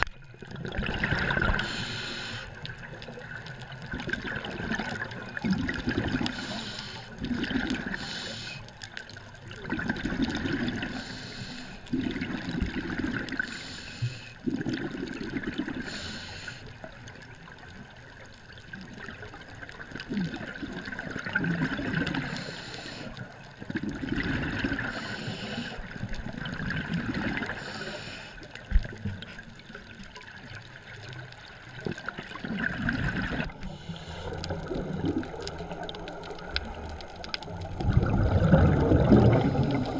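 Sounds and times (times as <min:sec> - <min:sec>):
regulator inhale hiss: 0:01.5 - 0:02.7, 0:06.3 - 0:07.2, 0:07.8 - 0:08.7, 0:10.9 - 0:11.9, 0:13.4 - 0:14.4, 0:15.8 - 0:16.8, 0:22.2 - 0:23.2, 0:24.8 - 0:26.0, 0:27.5 - 0:28.6, 0:33.6 - 0:34.7, 0:39.3 - 0:39.9
bubbling exhaust: 0:37.6 - 0:39.9.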